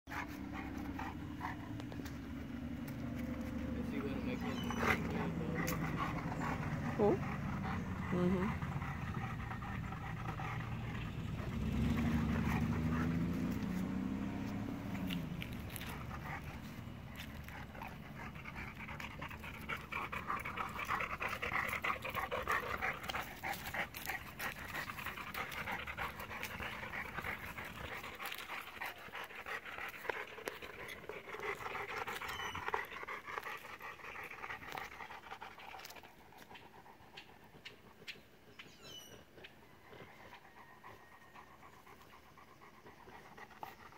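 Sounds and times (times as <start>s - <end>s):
dog panting: 0.1s - 43.9s.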